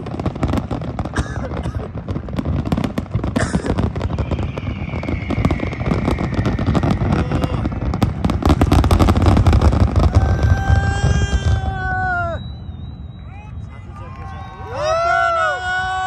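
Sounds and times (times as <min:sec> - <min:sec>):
fireworks crackling and popping: 0:00.0 - 0:16.0
low fireworks booms: 0:00.0 - 0:16.0
faint descending whistle: 0:04.1 - 0:07.2, 0:11.3 - 0:15.6.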